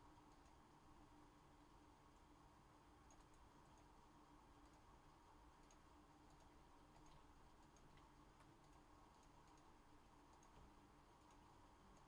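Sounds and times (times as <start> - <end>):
soft clicks: 0.2 - 0.6, 3.0 - 4.0, 4.6 - 4.9, 5.6 - 12.0.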